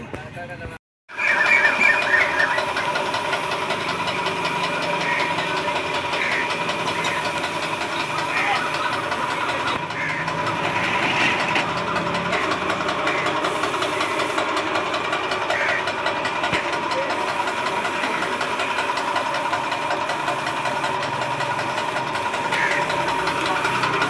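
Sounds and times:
air compressor chugging: 0:01.1 - 0:24.0
spray gun hissing: 0:02.3 - 0:09.7, 0:12.4 - 0:14.8, 0:16.7 - 0:24.0.

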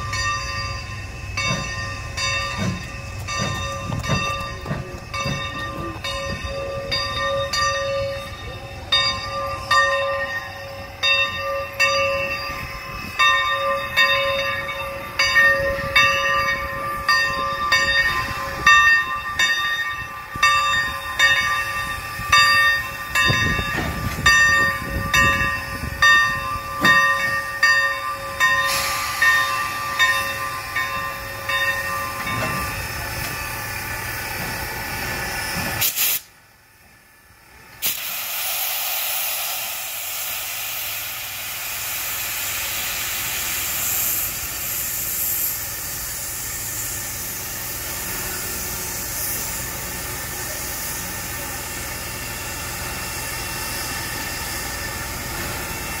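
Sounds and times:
locomotive bell ringing: 0:00.0 - 0:34.8
steam locomotive hissing: 0:00.0 - 0:56.0.

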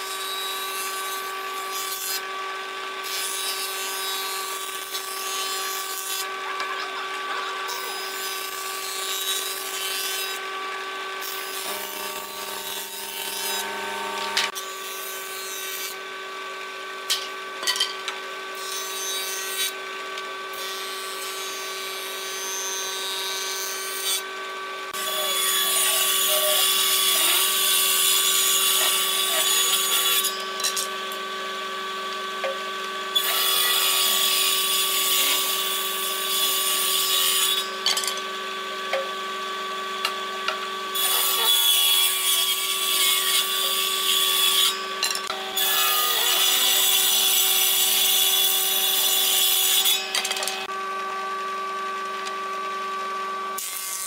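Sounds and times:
table saw cutting wood: 0:00.0 - 0:54.0
woodworking machine motor running: 0:00.5 - 0:14.8, 0:15.9 - 0:20.6, 0:23.4 - 0:53.9.

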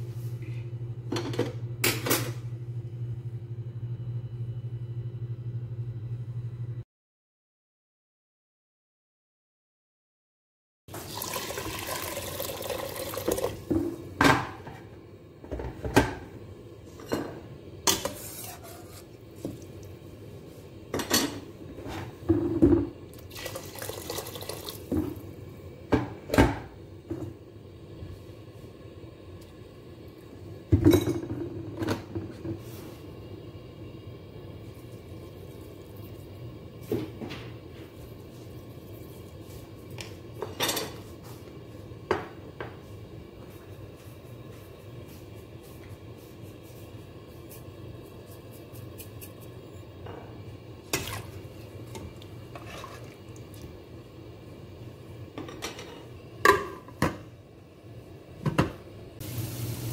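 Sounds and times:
tap water running into pot: 0:10.9 - 0:13.9, 0:22.6 - 0:25.2, 0:50.9 - 0:53.7, 0:59.2 - 0:59.9.

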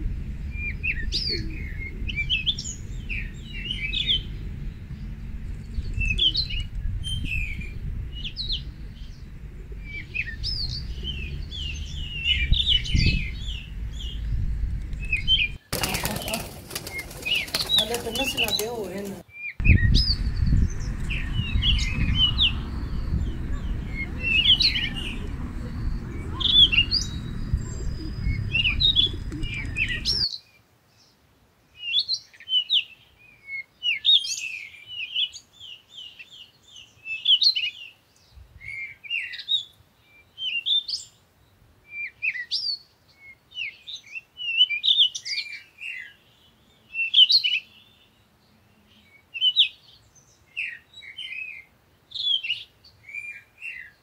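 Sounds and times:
low rumbling noise: 0:00.0 - 0:18.2, 0:19.6 - 0:30.2
small songbirds chirping: 0:00.0 - 0:54.0.

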